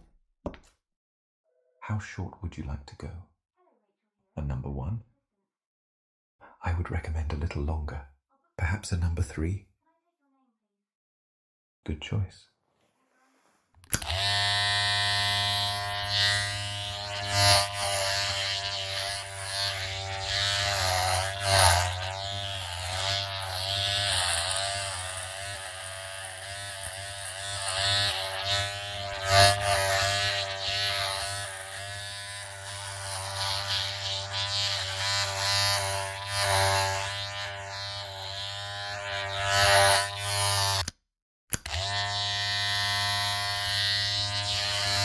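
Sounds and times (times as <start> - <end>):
hair clippers humming: 13.8 - 45.0.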